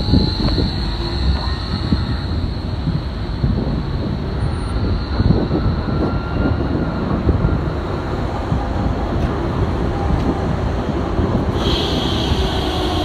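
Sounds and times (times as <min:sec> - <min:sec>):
faint high whine: 0:00.0 - 0:08.5, 0:11.5 - 0:13.0
tram wheels rumbling on rails: 0:00.0 - 0:13.0.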